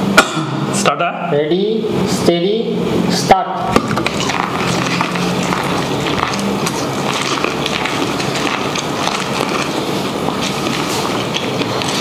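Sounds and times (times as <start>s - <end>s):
people chewing corn on the cob: 3.8s - 12.0s.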